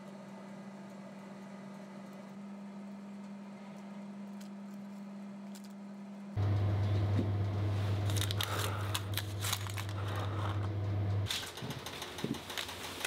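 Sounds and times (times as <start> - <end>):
steady low hum: 0.0 - 13.0
baking paper crinkling: 7.6 - 10.7, 11.3 - 13.0.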